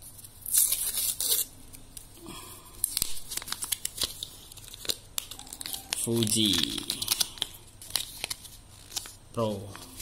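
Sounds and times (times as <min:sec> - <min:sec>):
foil wrapper tearing: 0:00.4 - 0:01.8
foil crinkling: 0:02.8 - 0:10.0.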